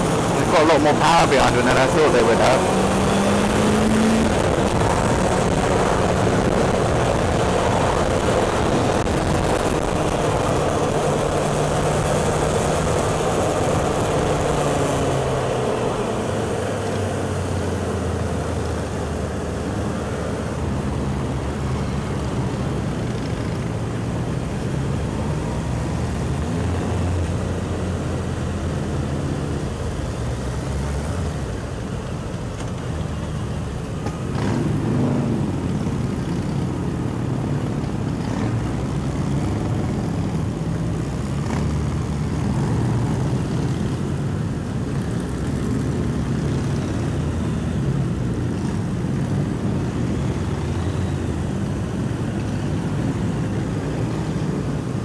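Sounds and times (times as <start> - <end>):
other motorbikes: 0.0 - 55.0
wind noise on microphone: 2.7 - 16.7.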